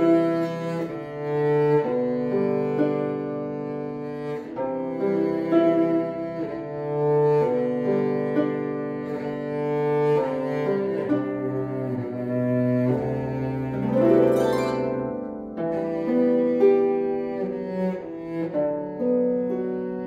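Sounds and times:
cello bowed melody: 0.0s - 20.0s
harp plucked: 10.8s - 17.5s.

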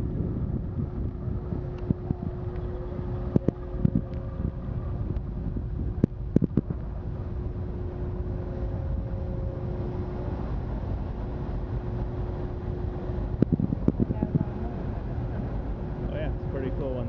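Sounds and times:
churning propeller wash: 0.0s - 17.0s
ferry engines rumbling: 0.0s - 17.0s.

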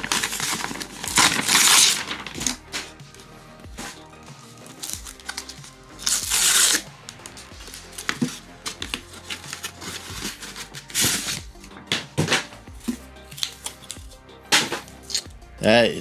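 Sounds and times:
cardboard tear strip ripping: 0.0s - 2.9s, 4.6s - 12.5s, 13.4s - 14.0s, 14.6s - 15.3s
envelope rustling and crinkling: 0.0s - 3.2s, 3.8s - 15.3s.

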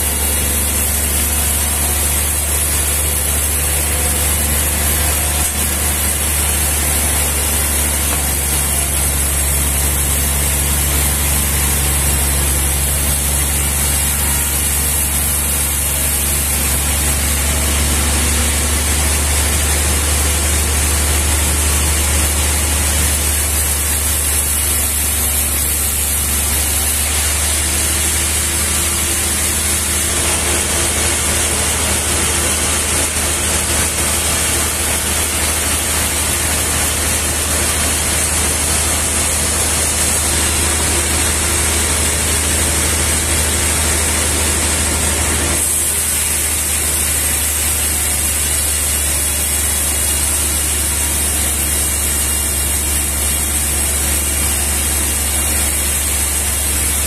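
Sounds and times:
band saw cutting log: 0.0s - 57.0s.

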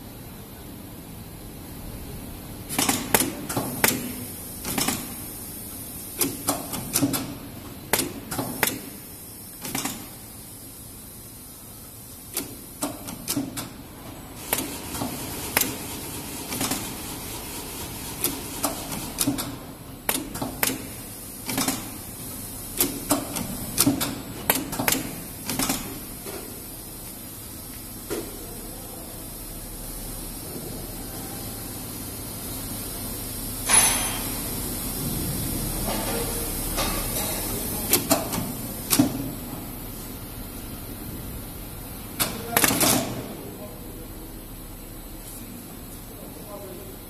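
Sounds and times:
machine hum: 0.0s - 42.6s
mechanical clicks and clacks: 9.6s - 10.1s, 12.3s - 13.8s, 14.4s - 22.0s, 22.7s - 26.0s, 37.9s - 39.2s.

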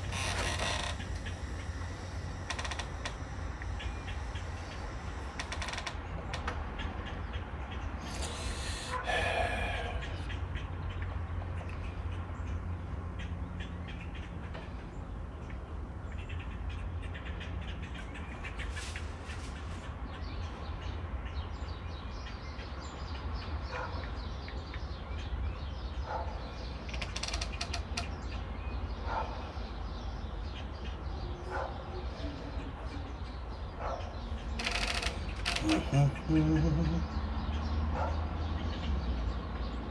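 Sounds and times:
short calls: 8.0s - 10.3s, 34.6s - 37.2s.

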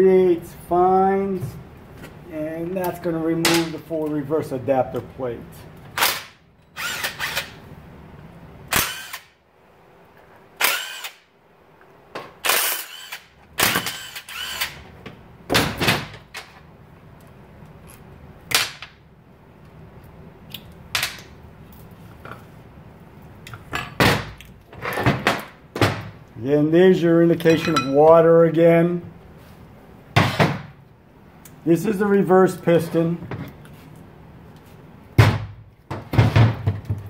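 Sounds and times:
impact wrench bursts: 6.0s - 7.6s, 8.7s - 9.4s, 10.6s - 11.3s, 12.4s - 14.8s.

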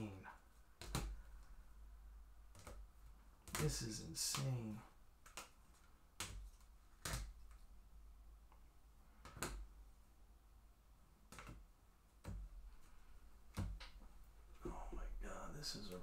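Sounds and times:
cards tapped on a table: 0.8s - 1.2s.

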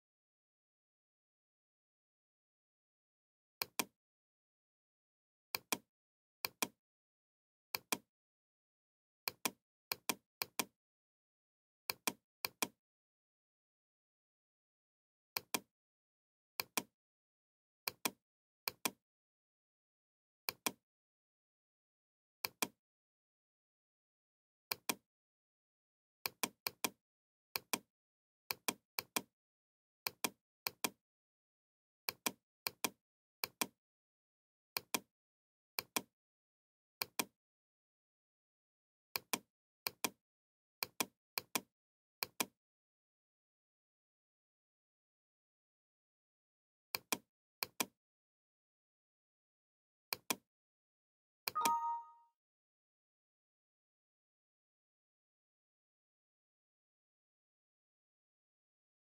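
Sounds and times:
computer mouse clicking: 5.6s - 6.8s, 32.1s - 33.7s, 35.8s - 36.1s, 39.2s - 40.2s, 40.8s - 42.5s, 47.0s - 47.9s, 50.1s - 50.4s.

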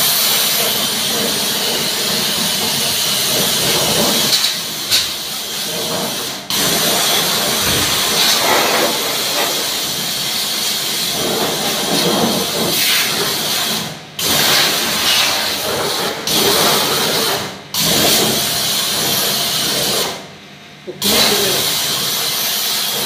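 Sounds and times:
pressure washer jet hissing: 0.0s - 17.5s
pressure washer motor running: 0.0s - 20.1s, 20.9s - 23.0s.

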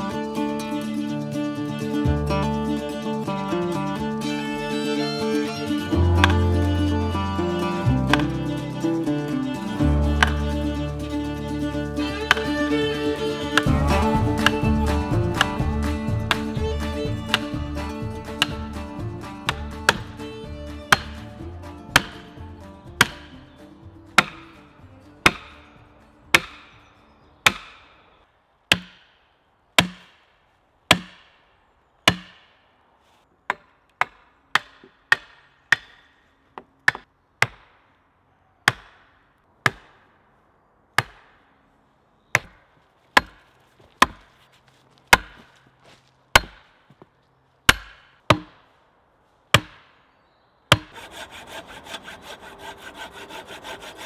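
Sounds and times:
axe chopping logs: 5.8s - 28.0s, 28.7s - 29.2s, 29.8s - 32.7s, 33.4s - 38.0s, 38.6s - 40.2s, 41.0s - 41.5s, 42.3s - 44.4s, 45.1s - 45.6s, 46.3s - 47.0s, 47.6s - 48.7s, 49.5s - 50.0s, 50.7s - 54.0s
hand saw sawing branch: 5.9s - 11.2s, 11.8s - 22.4s, 23.0s - 23.4s, 24.1s - 24.6s, 25.2s - 25.6s, 50.7s - 54.0s.

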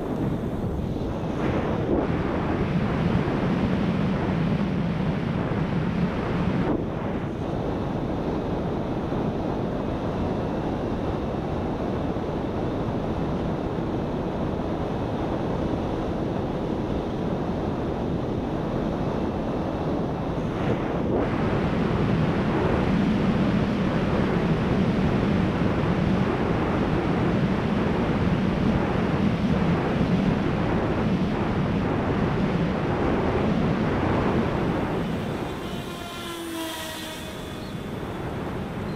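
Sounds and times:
wind rushing over camera: 0.0s - 38.9s
electric motor and propeller drone: 32.9s - 38.9s.

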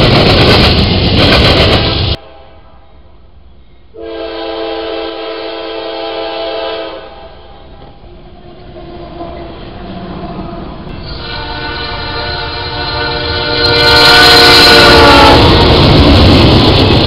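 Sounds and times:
locomotive rumble passing: 0.0s - 17.0s
locomotive horn blast: 2.2s - 3.1s, 4.0s - 7.9s, 10.9s - 15.9s.

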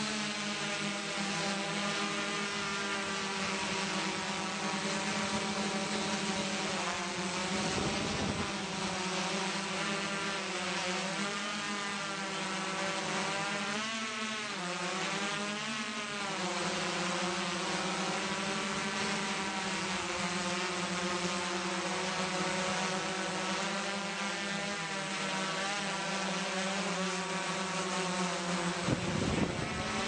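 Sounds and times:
drone propellers buzzing: 0.0s - 30.0s
wind rumble on microphone: 7.6s - 8.6s, 28.8s - 30.0s.

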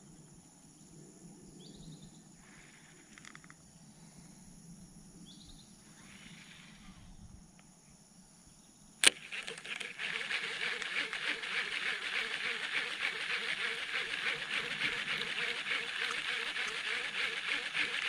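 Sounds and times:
fishing reel click: 9.0s - 18.0s
fishing reel whirring: 9.0s - 18.0s.

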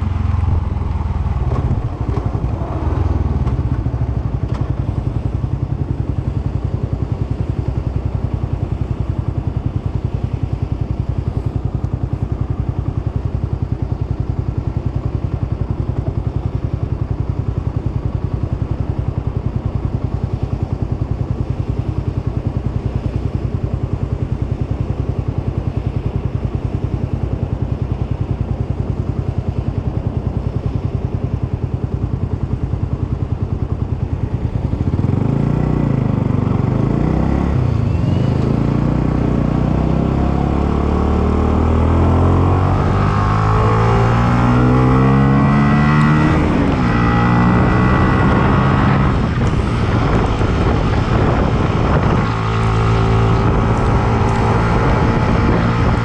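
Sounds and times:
wind buffeting microphone: 0.0s - 5.6s, 46.2s - 56.0s
motorcycle engine revving: 0.0s - 56.0s.

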